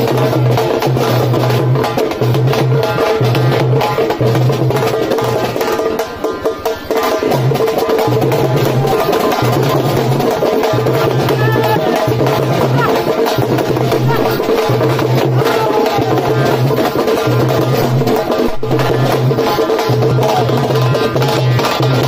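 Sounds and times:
stick-beaten drums: 0:00.0 - 0:22.0
low drum beat: 0:06.9 - 0:22.0.

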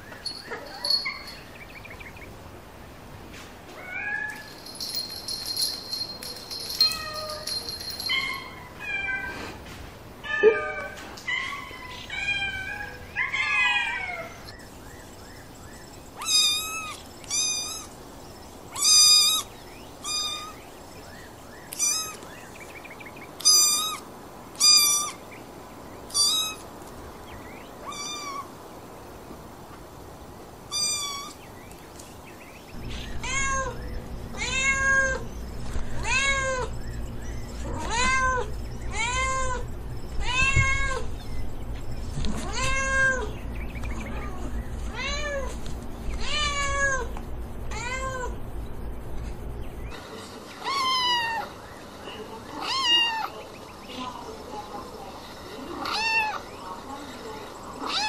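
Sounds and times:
kittens mewing: 0:21.7 - 0:22.2, 0:26.1 - 0:26.7
low steady hum: 0:28.7 - 0:52.4.

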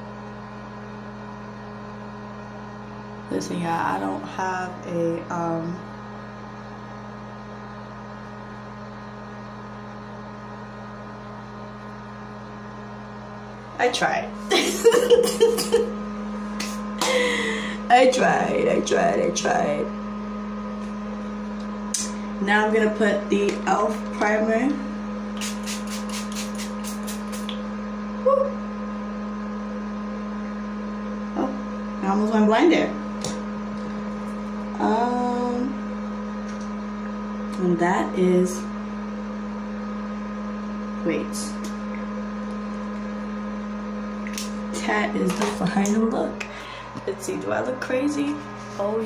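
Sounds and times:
electrical hum: 0:00.0 - 0:49.0
pump spray bottle spraying: 0:25.4 - 0:27.6.

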